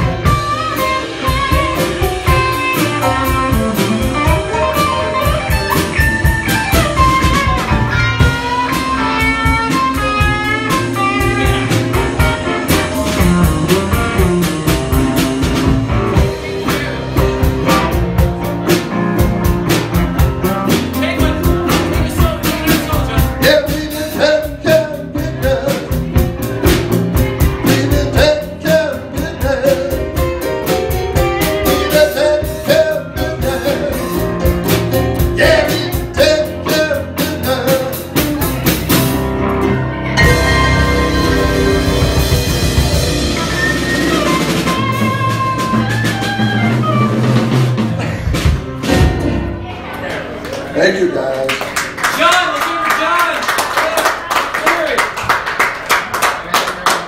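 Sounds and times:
electric guitar lead lines: 0:00.0 - 0:23.3, 0:37.5 - 0:48.5
steady drum beat: 0:00.0 - 0:49.6.

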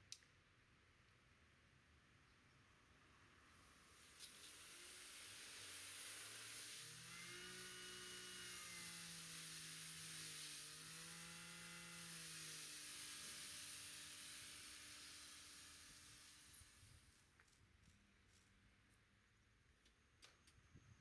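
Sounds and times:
pressure washer spraying water: 0:03.9 - 0:11.1, 0:11.9 - 0:16.9
pump motor running: 0:03.9 - 0:17.0.

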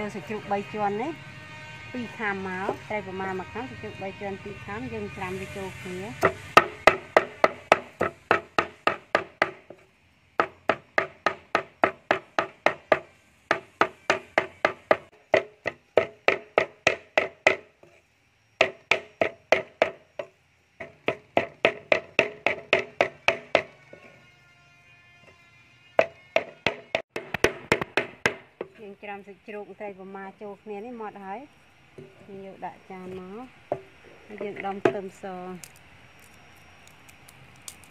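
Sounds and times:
meat cleaver chopping on wooden block: 0:06.2 - 0:09.8, 0:10.4 - 0:17.7, 0:20.8 - 0:24.1, 0:26.0 - 0:28.7.

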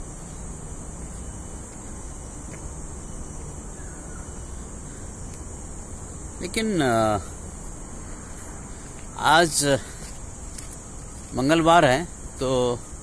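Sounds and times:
high hiss: 0:00.0 - 0:13.0
faint bird call: 0:03.7 - 0:05.3.

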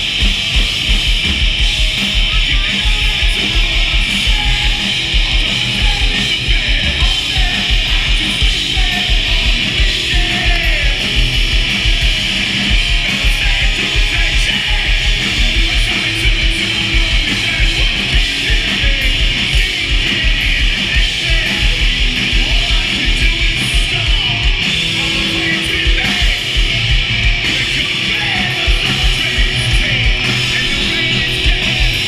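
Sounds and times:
distorted electric guitars: 0:00.0 - 0:32.0
fast drum beat: 0:00.0 - 0:32.0.

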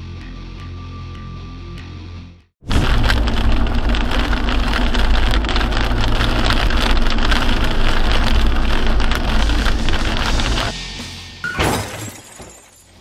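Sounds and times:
low engine and road rumble: 0:02.6 - 0:11.4
tyres hissing on snowy road: 0:02.8 - 0:11.1.

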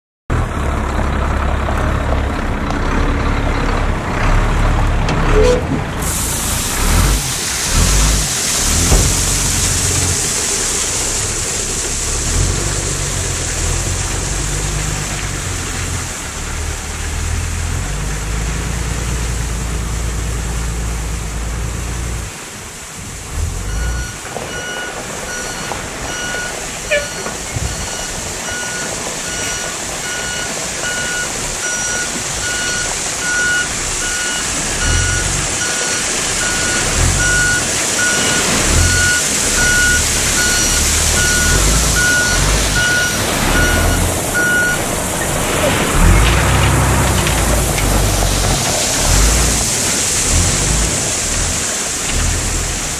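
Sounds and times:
diesel engine running: 0:00.3 - 0:52.9
reversing alarm beeping: 0:23.7 - 0:44.8.

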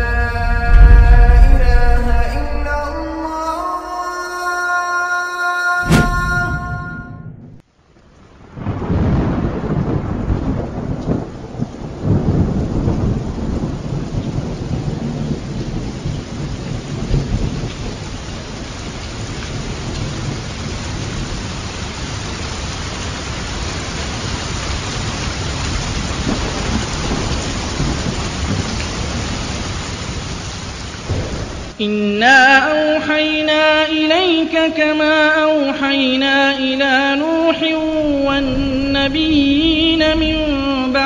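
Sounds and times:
thunder rumbling: 0:00.0 - 0:03.6, 0:08.4 - 0:31.8, 0:37.8 - 0:41.0
steady rain: 0:07.6 - 0:31.8, 0:35.7 - 0:41.0.

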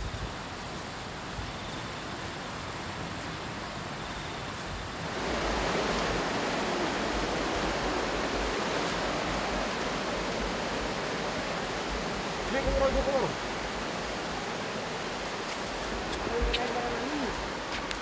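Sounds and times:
flowing water rushing: 0:04.8 - 0:18.0.

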